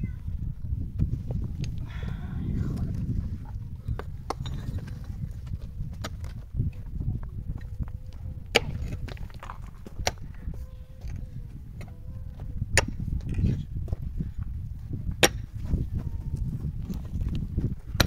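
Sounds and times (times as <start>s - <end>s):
steady low rumble: 0.0s - 18.0s
rocks knocking together: 8.5s - 10.4s.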